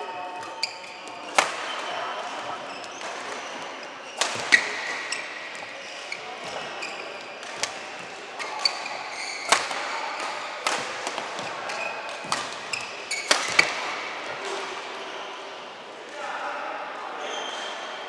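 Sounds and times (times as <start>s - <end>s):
shoes squeaking on court: 0.4s - 10.6s, 11.4s - 14.1s
rackets striking shuttlecock: 9.4s - 14.1s.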